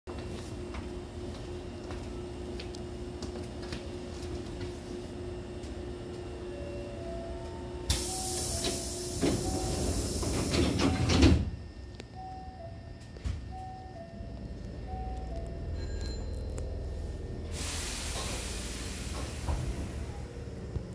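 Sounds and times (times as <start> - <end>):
stopped train humming: 0.2 - 20.9
air hiss from train doors: 7.9 - 11.5, 17.5 - 20.3
train doors thumping shut: 7.9 - 11.6, 18.0 - 20.1.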